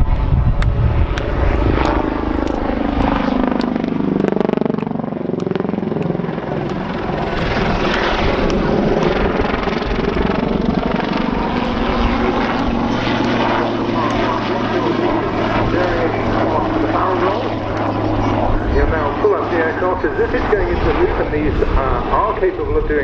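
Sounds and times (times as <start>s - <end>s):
helicopter rotor chop and turbine: 0.0s - 23.0s.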